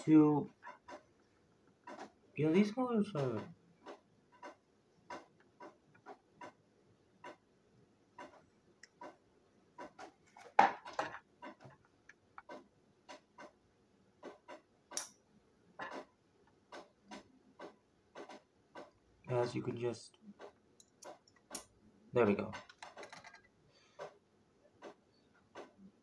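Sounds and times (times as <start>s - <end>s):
clatter of small parts: 22.5s - 24.2s.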